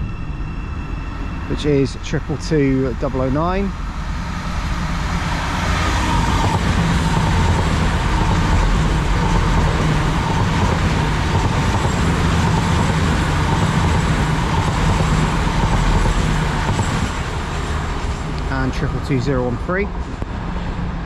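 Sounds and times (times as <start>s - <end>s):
diesel engines droning: 0.0s - 21.0s
train wheels rushing on rail: 0.0s - 21.0s.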